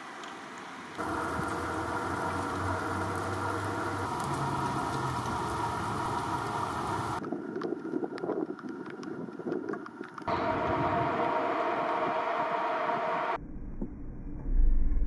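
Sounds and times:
light rain falling: 0:00.0 - 0:12.0
scattered water drips: 0:00.1 - 0:10.3
low steady hum: 0:10.3 - 0:15.0.

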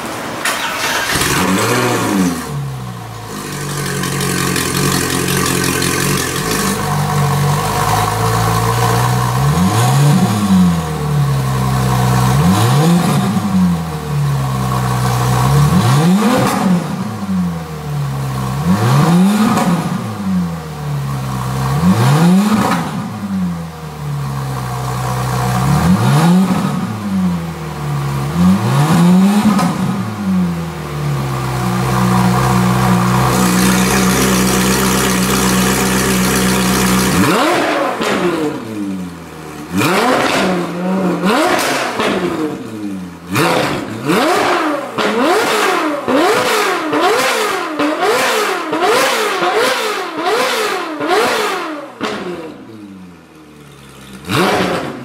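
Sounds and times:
car engine idling: 0:00.0 - 0:12.6, 0:23.0 - 0:44.3
engine revving: 0:00.5 - 0:17.6, 0:18.3 - 0:20.6, 0:21.4 - 0:23.6, 0:24.8 - 0:27.6, 0:28.2 - 0:52.9, 0:53.6 - 0:55.0.

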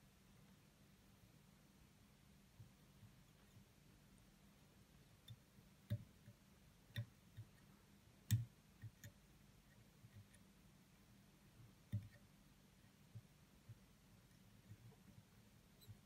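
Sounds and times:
faint clicks and taps: 0:05.0 - 0:10.6, 0:11.5 - 0:16.0.

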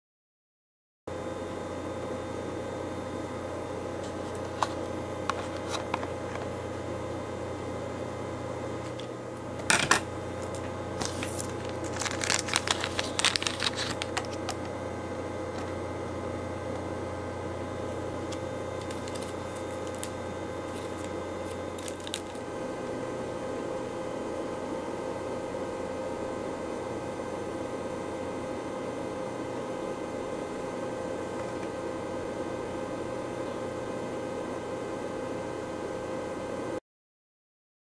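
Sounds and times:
electrical hum: 0:01.1 - 0:36.8
plastic wrapper crinkling: 0:10.4 - 0:14.8, 0:18.3 - 0:22.4
cardboard box tearing: 0:11.1 - 0:14.3.

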